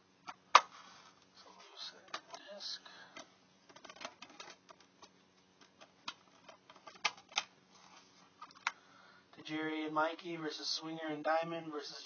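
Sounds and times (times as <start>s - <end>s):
plastic case clicking and rattling: 3.2s - 7.5s.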